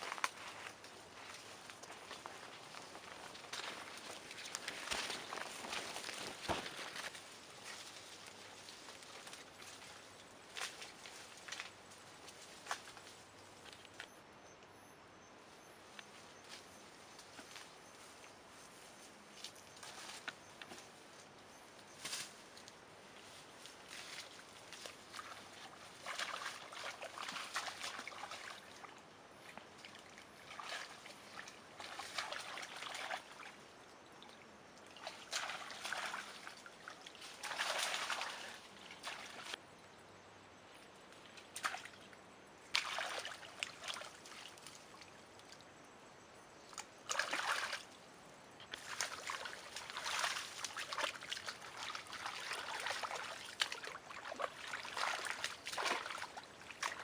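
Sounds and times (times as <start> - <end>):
splashing in muddy water: 24.0 - 39.6, 41.2 - 45.7, 46.7 - 48.0, 48.7 - 57.0.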